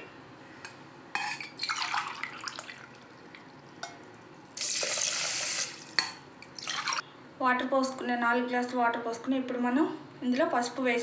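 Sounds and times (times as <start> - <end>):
water pouring into steel bowl: 1.6 - 3.0.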